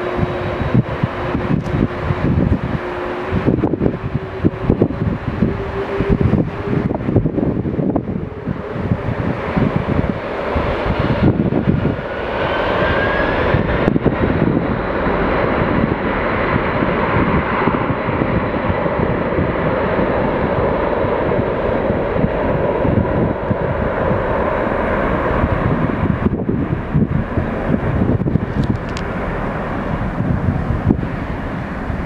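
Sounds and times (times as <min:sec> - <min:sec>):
faint rising whine: 0:00.0 - 0:17.6
jet engines roaring: 0:00.0 - 0:32.0.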